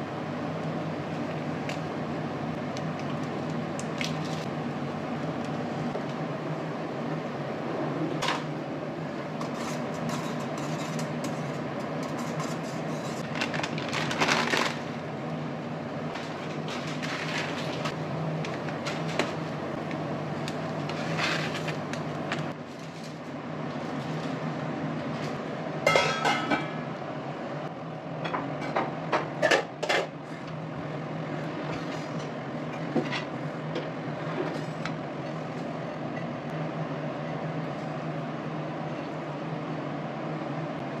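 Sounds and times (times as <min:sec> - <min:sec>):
kitchen hum: 0:00.0 - 0:41.0
utensils clinking on a pan: 0:25.9 - 0:26.7.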